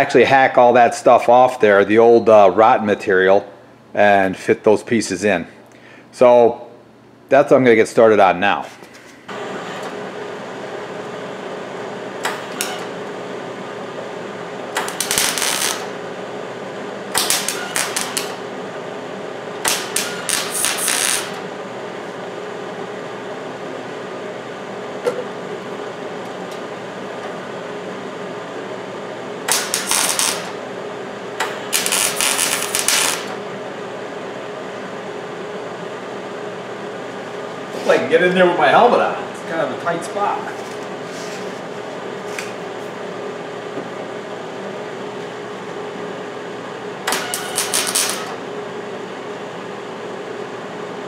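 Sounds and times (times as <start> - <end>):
steady hum: 0.0 - 51.0
welder arc crackling: 14.7 - 16.0, 17.1 - 18.4, 19.6 - 21.4, 29.4 - 30.6, 31.4 - 33.4, 47.1 - 48.4.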